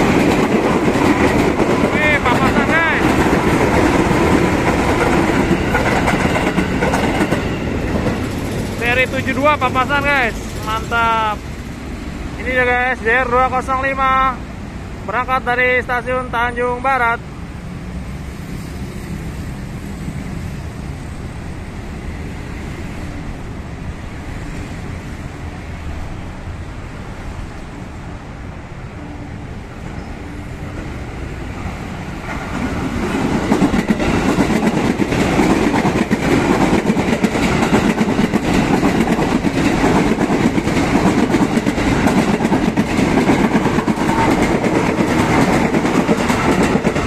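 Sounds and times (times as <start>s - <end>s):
train wheels clattering over rails: 0.0s - 12.0s, 30.7s - 47.0s
electric train passing: 0.0s - 47.0s.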